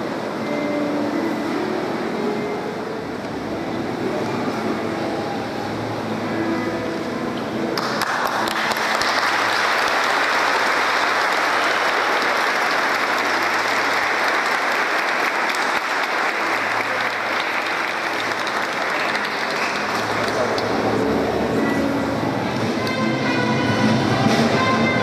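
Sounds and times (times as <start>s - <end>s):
congregation applauding: 7.7s - 25.0s.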